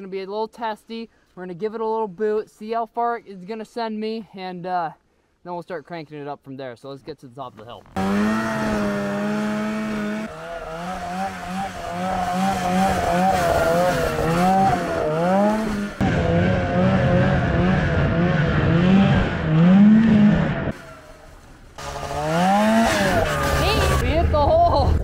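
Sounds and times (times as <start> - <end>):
snowmobile engine revving: 7.9 - 24.8.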